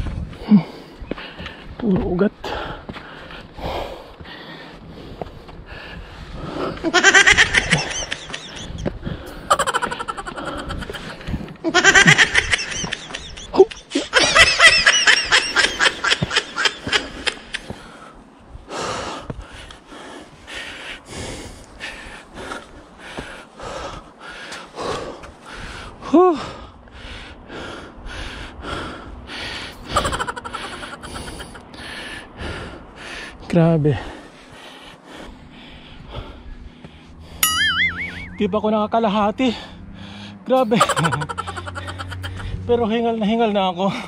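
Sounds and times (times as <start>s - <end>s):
man panting hard: 0.0s - 6.9s, 7.5s - 11.6s, 15.6s - 37.4s, 39.4s - 42.7s
man laughing: 6.8s - 17.6s, 29.8s - 31.6s, 40.5s - 42.9s.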